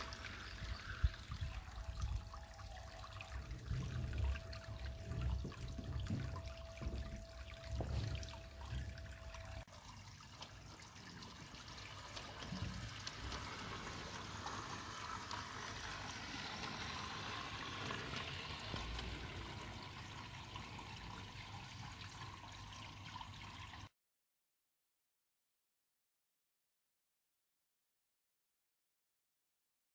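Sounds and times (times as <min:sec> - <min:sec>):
water trickling: 0:00.0 - 0:23.9.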